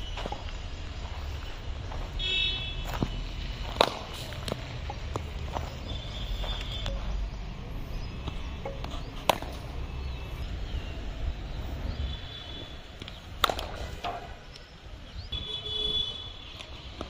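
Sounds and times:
cricket bat striking ball: 3.7s - 4.2s, 9.2s - 9.6s, 12.9s - 14.4s.

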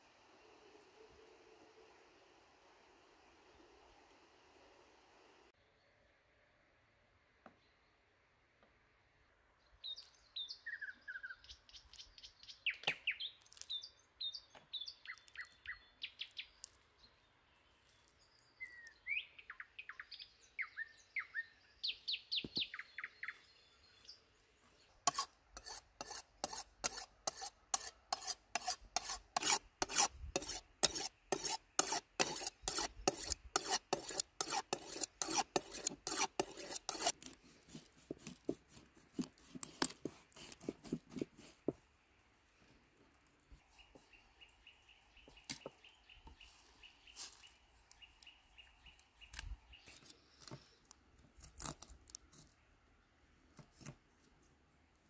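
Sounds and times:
birds singing: 9.6s - 25.0s
knife scraping on honing steel: 25.1s - 37.4s.

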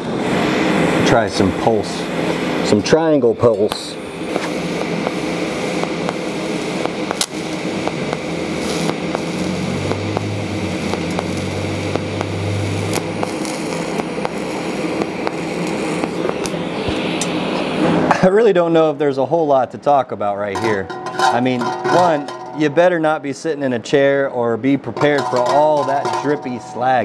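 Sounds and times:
welding arc hiss and buzz: 0.0s - 18.7s.

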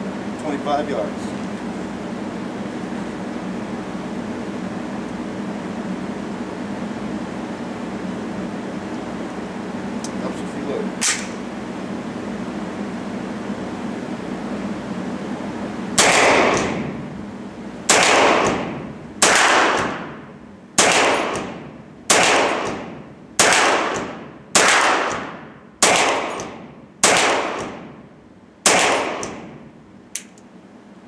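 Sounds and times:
gunshots in indoor range: 16.0s - 17.0s, 17.8s - 28.0s, 28.6s - 29.7s
light click: 30.1s - 30.5s.

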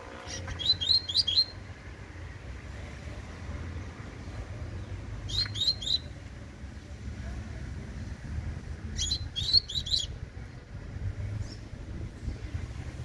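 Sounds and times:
bird singing rising notes: 0.0s - 1.6s.

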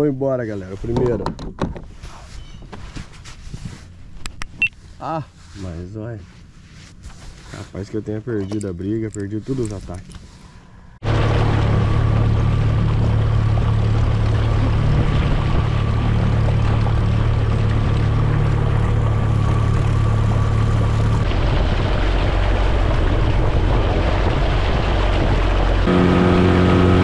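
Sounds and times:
outboard motor running: 10.2s - 27.0s.

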